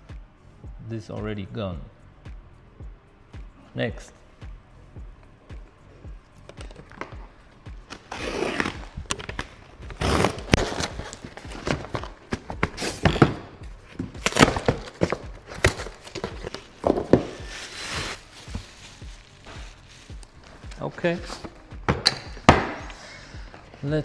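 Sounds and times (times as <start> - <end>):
packing paper rustling: 14.0 - 21.5.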